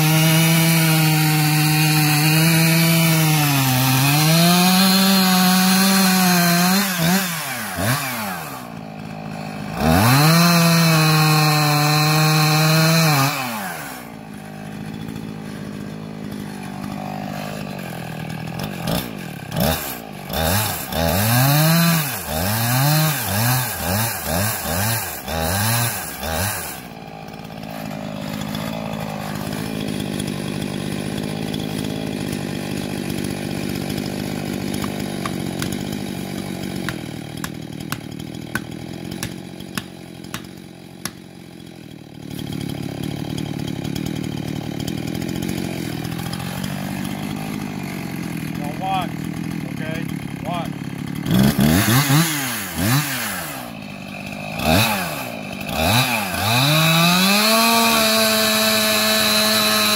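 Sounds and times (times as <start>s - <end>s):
chainsaw revving and idling: 0.0s - 59.9s
wedge being hammered: 34.8s - 35.8s, 36.8s - 41.2s.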